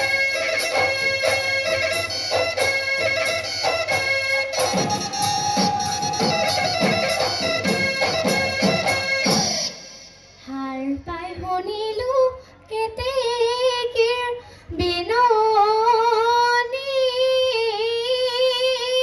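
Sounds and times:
drum beats: 0:00.0 - 0:11.6
girl singing in a high voice: 0:10.4 - 0:19.0.

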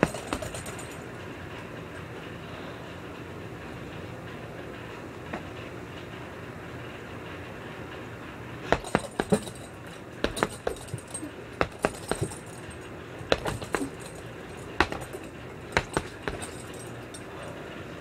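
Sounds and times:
boxing gloves punching heavy bag: 0:00.0 - 0:01.0, 0:08.7 - 0:17.1
chain clinking: 0:00.0 - 0:01.2, 0:08.7 - 0:17.8.

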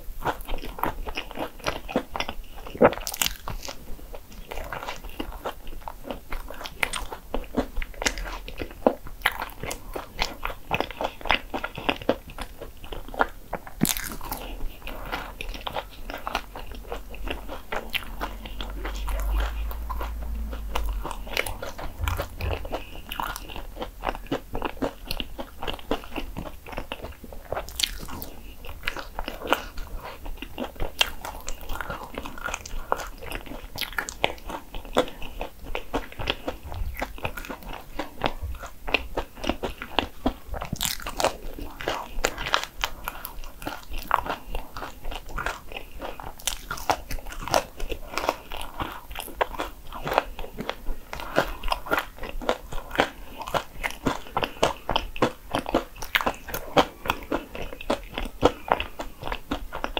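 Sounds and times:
crunchy bites and chewing: 0:00.0 - 0:59.9.

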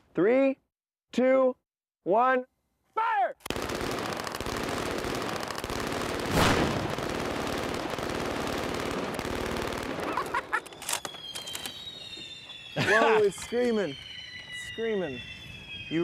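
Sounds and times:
automatic gunfire: 0:03.5 - 0:10.4.

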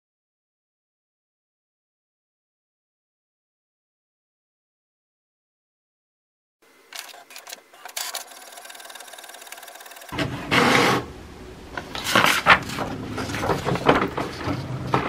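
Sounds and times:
inkjet printer printing: 0:06.9 - 0:15.0.

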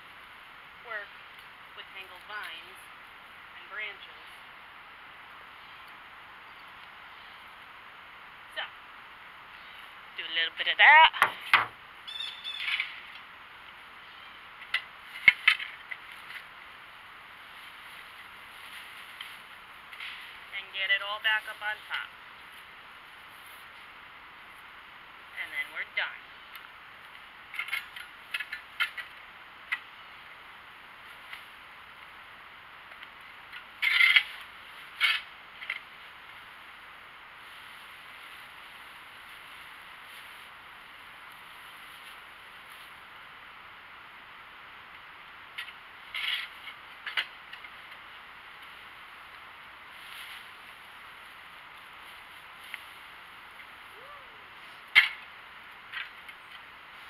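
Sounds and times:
steady background hiss: 0:00.0 - 0:57.0
sharp clicks and knocks: 0:11.2 - 0:11.8
pitchfork rustling dry leaves: 0:15.0 - 0:20.5, 0:37.4 - 0:43.0, 0:49.8 - 0:53.9.

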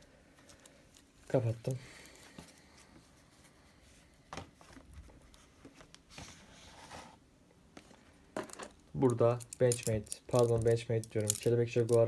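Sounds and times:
quiet rustling: 0:00.2 - 0:12.0.

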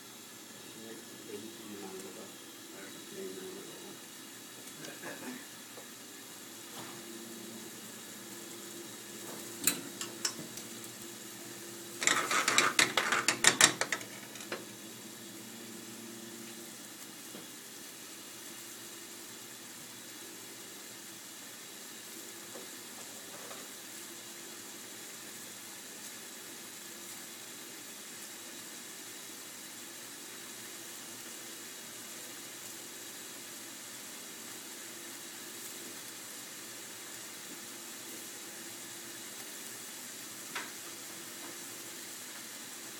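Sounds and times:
gas burner hiss: 0:00.0 - 0:42.9
sauce simmering in a pan: 0:00.0 - 0:42.9
dense clicking and rattling: 0:12.0 - 0:14.6.

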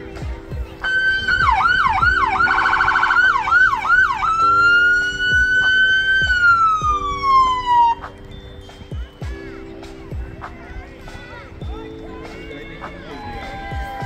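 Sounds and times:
electronic siren yelp and wail: 0:00.8 - 0:08.0.

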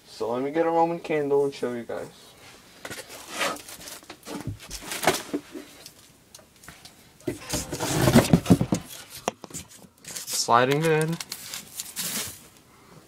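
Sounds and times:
packaging rustling: 0:07.4 - 0:12.5.

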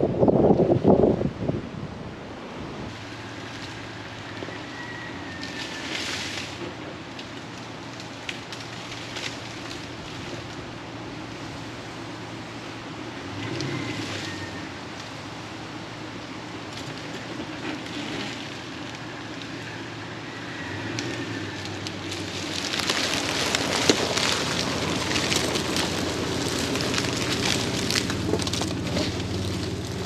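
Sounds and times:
tyres crackling over leaves and twigs: 0:02.9 - 0:30.0
car engine running: 0:21.0 - 0:30.0.

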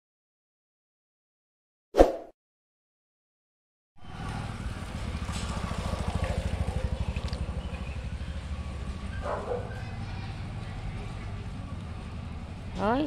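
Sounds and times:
small engine idling: 0:04.0 - 0:13.0.

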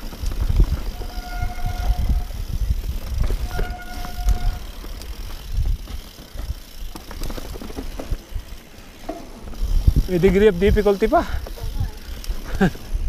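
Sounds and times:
bike tyres rumbling over rocks: 0:00.0 - 0:13.0
disc brake squeal: 0:03.4 - 0:04.7.

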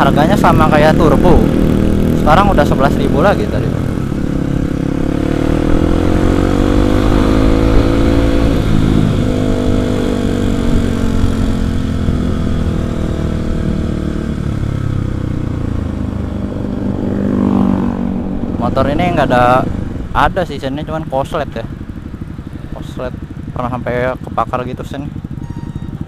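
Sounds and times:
motorcycle engine accelerating: 0:00.0 - 0:26.0
wind noise on microphone: 0:04.1 - 0:15.1.

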